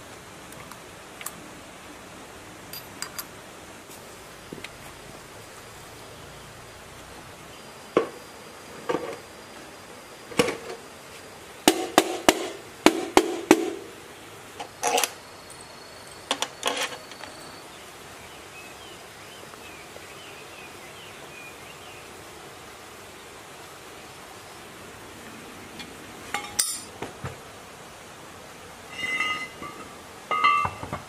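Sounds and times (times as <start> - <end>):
metal engine parts clinking: 2.7 - 3.3, 14.6 - 17.4, 26.3 - 26.9, 28.9 - 31.0.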